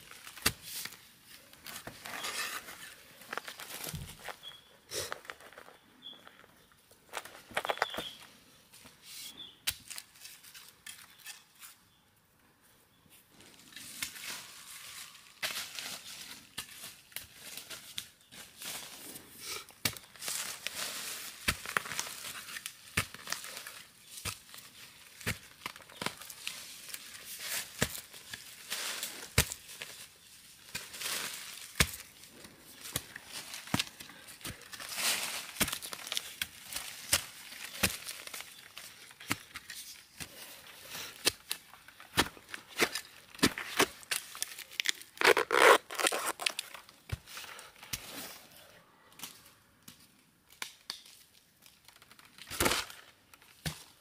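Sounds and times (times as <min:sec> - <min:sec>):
loose soil scraping and crumbling: 0:00.0 - 0:08.3, 0:13.3 - 0:48.6
dry leaves crackling: 0:14.0 - 0:19.2, 0:20.0 - 0:40.8
digging tool tearing into soil: 0:42.2 - 0:46.7.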